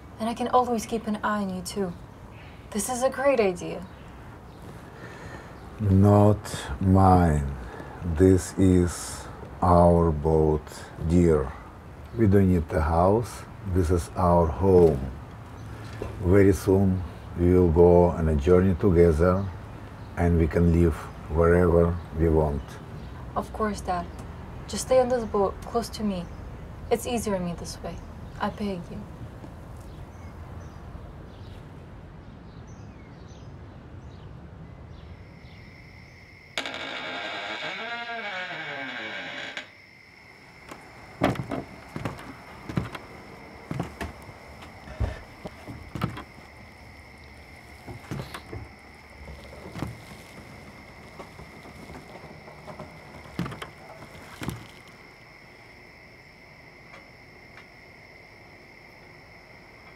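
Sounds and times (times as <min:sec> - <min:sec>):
knocks and thuds in boat cabin: 0:41.2 - 0:46.4, 0:47.8 - 0:54.8.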